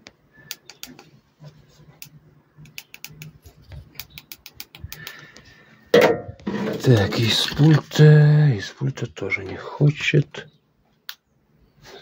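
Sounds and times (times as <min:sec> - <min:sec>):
hands clicking and tapping circuit board: 0:00.0 - 0:01.1, 0:02.0 - 0:05.2.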